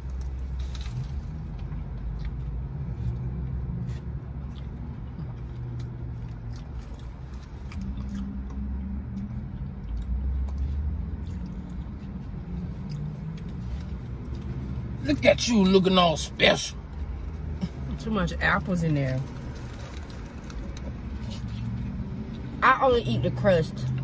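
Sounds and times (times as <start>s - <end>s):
car rumble from inside cabin: 0.0s - 24.0s.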